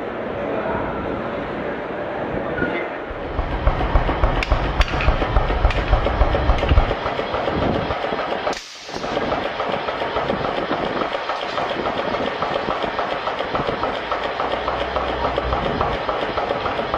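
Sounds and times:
sharp metal strikes: 3.1 - 10.0
machinery rhythmic clatter: 3.1 - 16.9.

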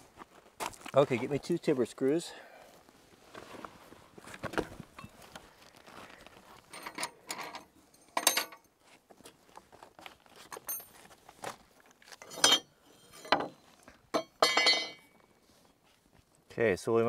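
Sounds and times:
metal screws clinking on wood: 6.6 - 8.8, 10.4 - 11.2, 12.1 - 15.2.

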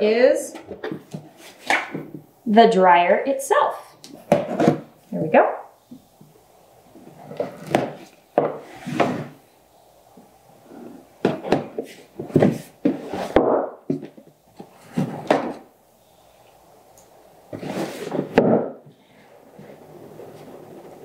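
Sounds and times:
cardboard scraping and rubbing: 7.0 - 9.4, 10.7 - 13.4, 14.0 - 15.6, 17.5 - 18.4, 19.5 - 21.0.

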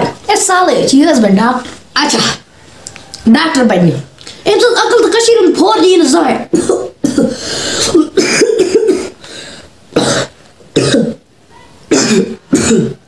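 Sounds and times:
boy coughing: 6.5 - 9.2, 9.9 - 11.2, 11.9 - 13.0.

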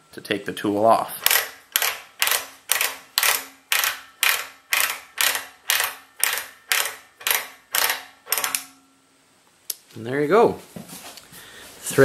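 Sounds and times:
ratchet clicking: 1.2 - 8.7.

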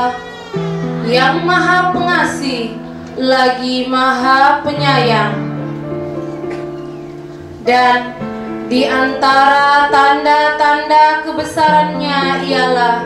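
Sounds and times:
woman singing: 8.7 - 13.0.

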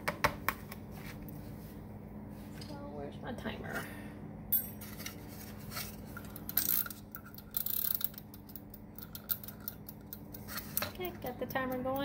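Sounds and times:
kitchen timer clicking: 11.0 - 12.0.

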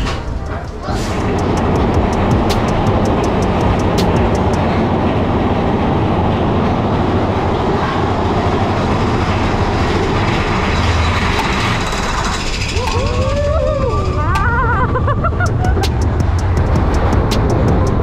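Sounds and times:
rapid clicking: 0.0 - 4.8, 15.4 - 18.0
roller coaster rumbling on track: 0.0 - 18.0.

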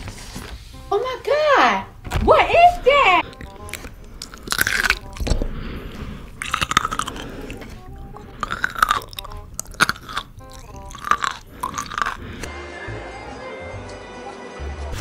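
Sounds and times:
wet crunching of pickle chewing: 3.2 - 12.5.

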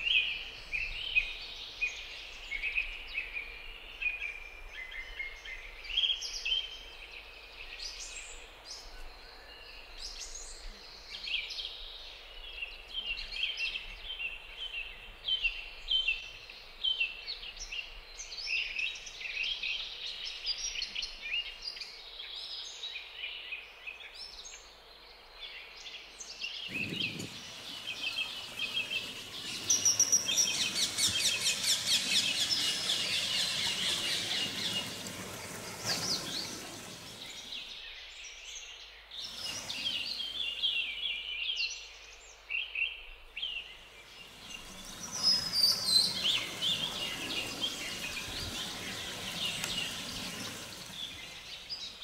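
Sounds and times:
faint outdoor hiss: 0.0 - 52.0
birds chirping: 26.6 - 38.0, 39.1 - 41.6, 43.4 - 52.0.

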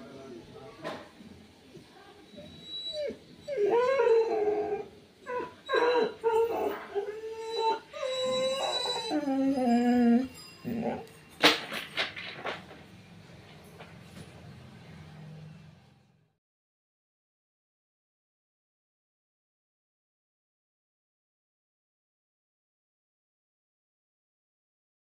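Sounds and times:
dog whining and howling: 2.3 - 11.2.

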